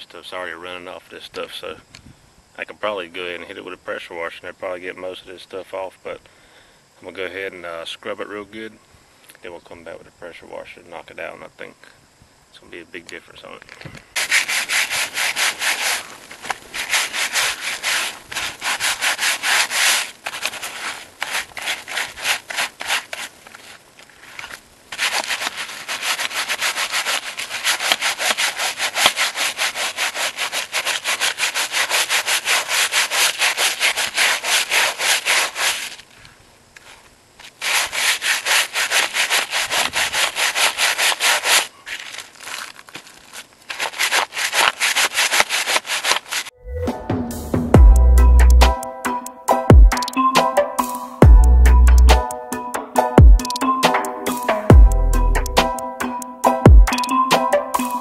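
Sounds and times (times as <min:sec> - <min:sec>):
scrub brush scrubbing wet webbing: 0:14.2 - 0:36.1, 0:36.8 - 0:46.5.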